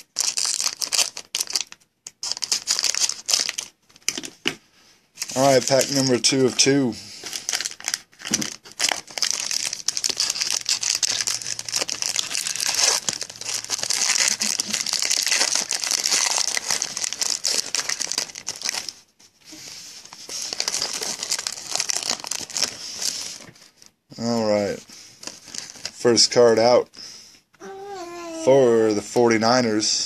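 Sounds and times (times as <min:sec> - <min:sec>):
foil wrapper crinkling and tearing: 0:00.0 - 0:04.3, 0:05.2 - 0:19.0, 0:20.0 - 0:23.5, 0:25.2 - 0:26.0.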